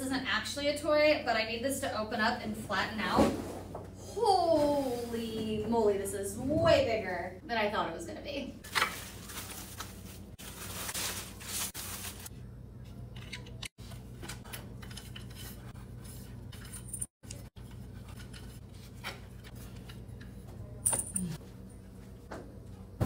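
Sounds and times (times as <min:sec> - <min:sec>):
plastic packaging crinkling: 0:08.6 - 0:12.3.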